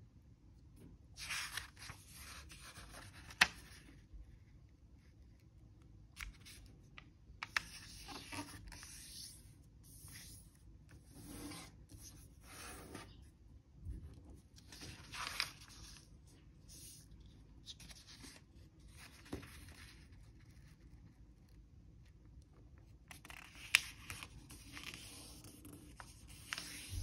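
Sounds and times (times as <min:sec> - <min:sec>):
paper rustling and crinkling: 0:14.5 - 0:21.0.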